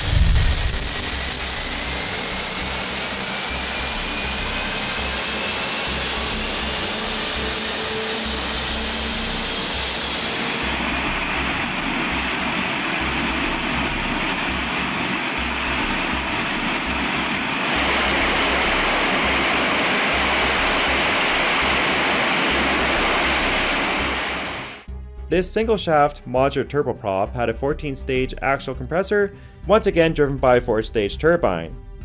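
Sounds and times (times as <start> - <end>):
high engine whine: 0.0 - 24.9
turboprop engine roaring: 0.0 - 24.9.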